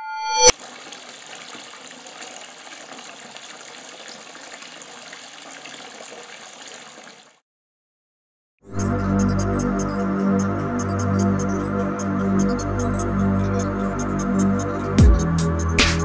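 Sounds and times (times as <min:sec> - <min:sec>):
ringing tone: 0:00.0 - 0:00.5
underwater water rush: 0:00.5 - 0:07.4.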